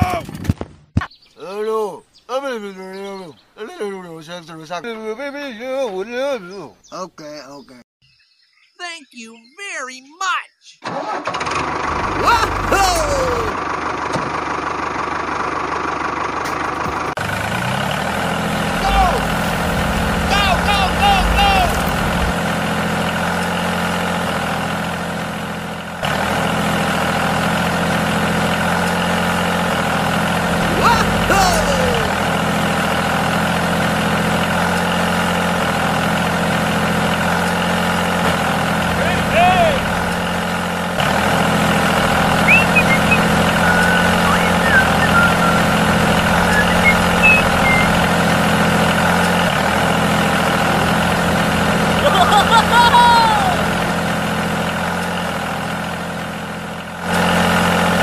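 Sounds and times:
bird chirps: 6.4s - 10.8s, 42.2s - 48.3s
tractor motor hum: 10.8s - 58.0s.

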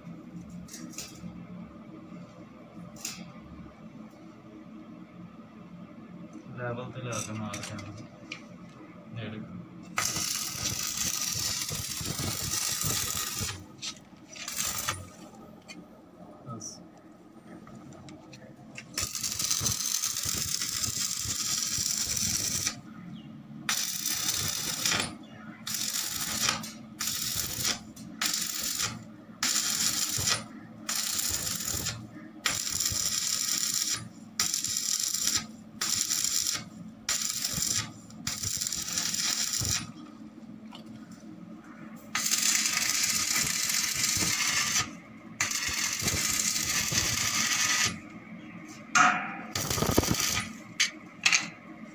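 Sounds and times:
arc welding crackling: 2.9s - 3.3s, 9.8s - 15.4s, 18.8s - 22.9s, 23.7s - 40.0s, 42.0s - 48.2s, 49.0s - 51.4s.

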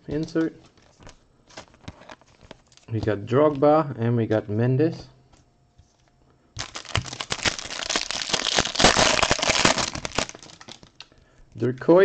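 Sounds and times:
foil wrapper crinkling: 6.6s - 11.2s.

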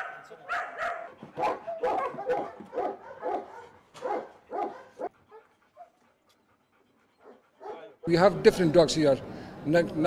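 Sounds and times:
dog barking: 0.0s - 6.0s, 7.2s - 7.9s.

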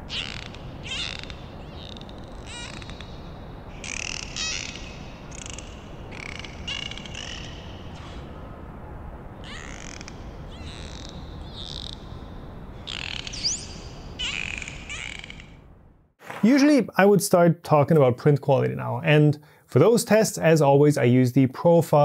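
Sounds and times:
short shrill animal calls: 0.0s - 3.2s, 3.8s - 8.4s, 9.4s - 12.0s.

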